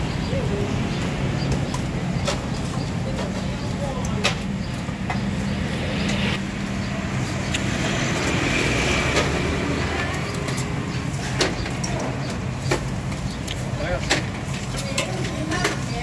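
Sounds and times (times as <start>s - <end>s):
engine droning: 0.3s - 13.0s.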